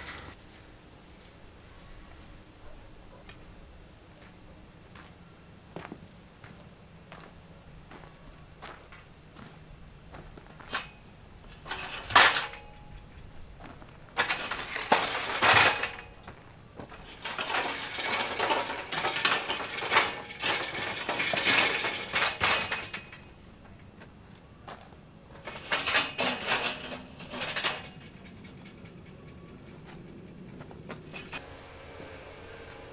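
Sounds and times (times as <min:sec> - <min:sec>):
steel scaffolding clanking: 0:10.6 - 0:23.8, 0:25.3 - 0:31.4.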